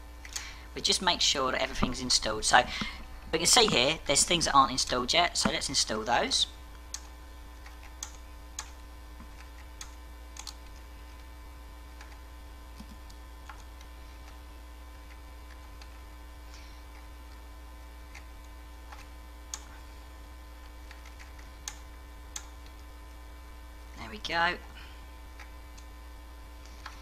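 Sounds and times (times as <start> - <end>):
mains hum: 0.0 - 27.0
sharp clicks: 6.8 - 10.8.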